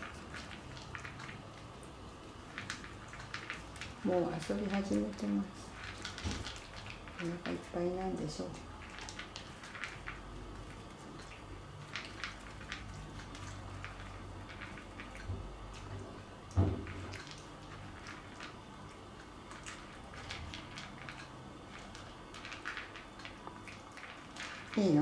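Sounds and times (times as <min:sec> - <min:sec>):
dog crunching kibble: 0:02.5 - 0:25.0
thump: 0:16.6 - 0:16.9.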